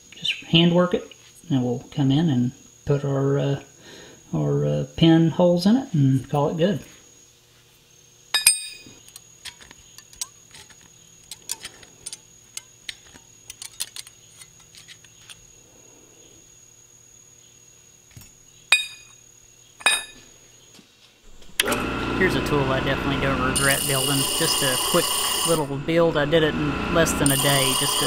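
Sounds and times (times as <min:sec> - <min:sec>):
ringing metal clinks: 0:08.4 - 0:08.9, 0:18.7 - 0:19.2, 0:19.8 - 0:20.2
metal parts clinking: 0:08.4 - 0:15.4, 0:18.7 - 0:19.2, 0:19.8 - 0:20.3
scraping ticks from deburring: 0:09.1 - 0:15.5.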